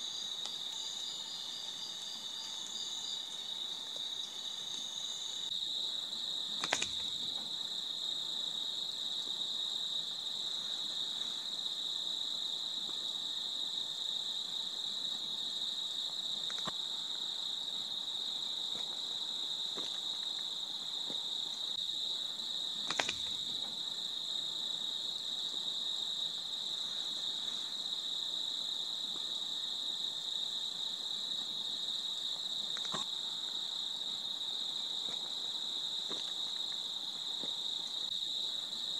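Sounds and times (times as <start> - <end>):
night insects droning: 0.0 - 38.9
sharp clicks: 6.6 - 7.0, 22.8 - 23.3.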